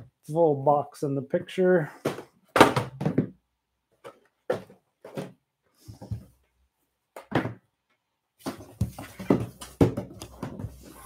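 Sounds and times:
cardboard boxes knocking: 2.0s - 3.4s, 4.5s - 5.4s, 8.4s - 10.9s
cardboard box scraping: 10.0s - 11.0s.

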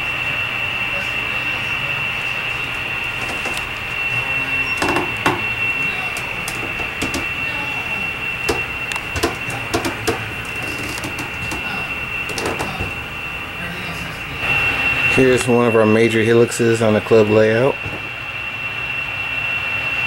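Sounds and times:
high-pitched whine: 0.0s - 20.0s
sharp clicks and light knocks: 6.5s - 7.3s, 8.5s - 11.6s.

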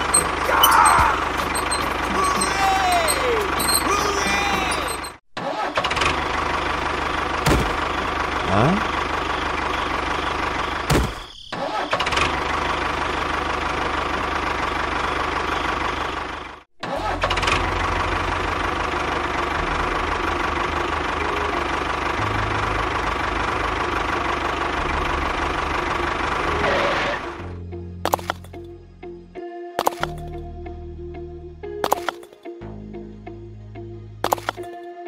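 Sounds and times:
engine chugging: 0.0s - 5.2s, 5.8s - 11.0s, 11.6s - 27.4s.

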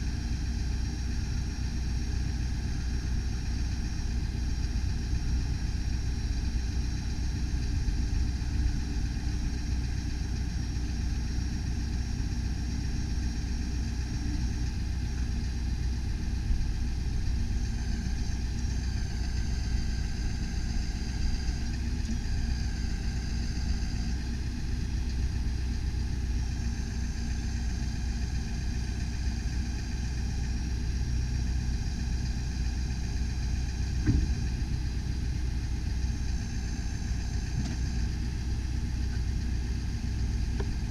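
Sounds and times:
truck engine idling: 0.0s - 40.9s
boom clunk: 34.0s - 34.5s.

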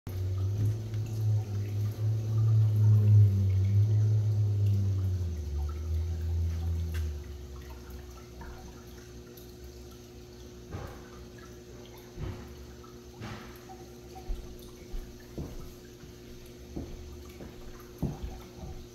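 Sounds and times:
aquarium water bubbling: 0.1s - 18.9s
pump hum: 0.1s - 18.9s
loud low rumble: 0.2s - 8.0s.

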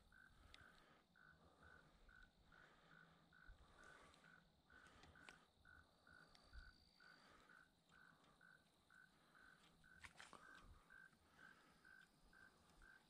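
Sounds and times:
light clicks: 3.8s - 5.4s.

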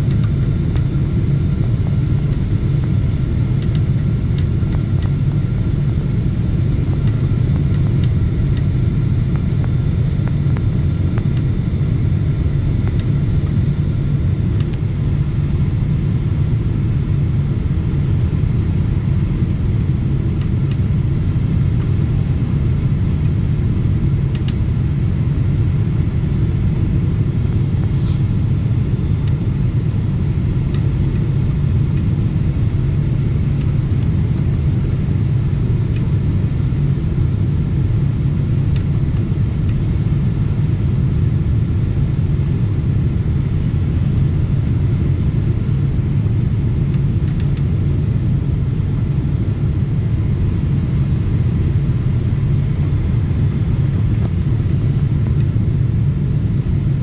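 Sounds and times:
jet engines rumbling: 0.0s - 57.0s
rushing air: 27.8s - 28.7s.

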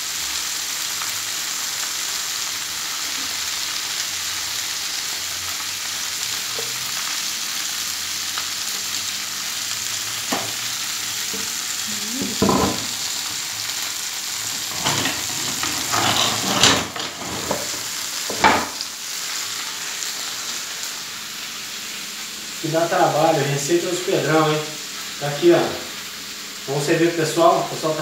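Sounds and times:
meat sizzling on a griddle: 0.0s - 28.0s
metal tray knocks and scrapes: 14.7s - 18.8s.

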